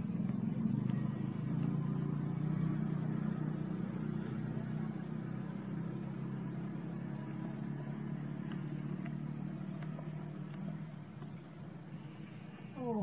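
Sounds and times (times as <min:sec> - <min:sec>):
vehicle engine humming: 0:00.0 - 0:13.0
faint clicks: 0:08.4 - 0:11.4.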